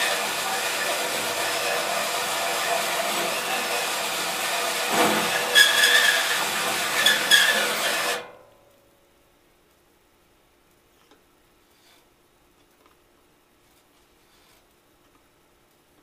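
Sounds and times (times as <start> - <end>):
cordless drill running: 0.0 - 8.2
hole saw squealing: 0.0 - 8.4.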